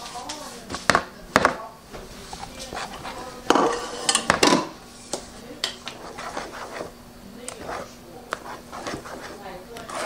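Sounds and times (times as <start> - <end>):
whisk beating batter in plastic bowl: 2.1 - 4.5, 5.1 - 10.0.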